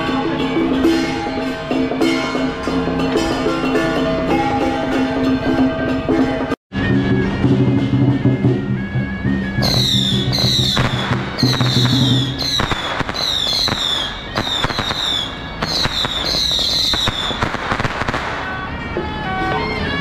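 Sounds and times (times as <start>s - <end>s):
music: 0.0s - 20.0s
firecrackers crackling: 9.6s - 19.6s.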